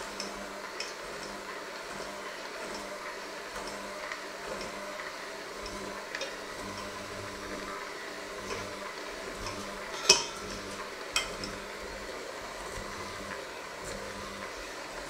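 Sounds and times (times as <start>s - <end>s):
electric hand mixer running: 0.0s - 15.0s
beaters clacking on metal bowl: 9.4s - 11.6s.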